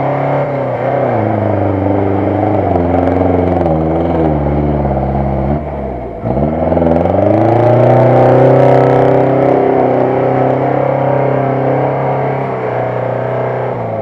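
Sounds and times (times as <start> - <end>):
engine revving hard: 0.0 - 14.0.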